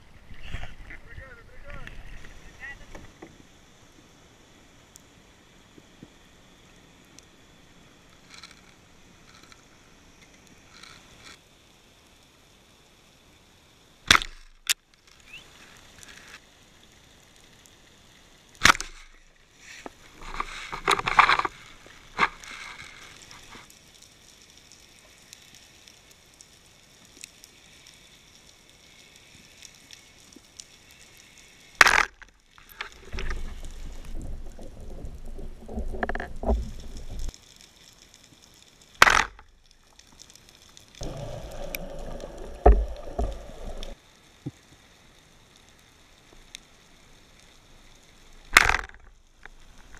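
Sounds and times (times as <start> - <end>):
low hiss: 0.0 - 49.9
rumbling water: 28.4 - 49.9
underwater gear clicks and knocks: 41.5 - 44.0, 48.5 - 49.9.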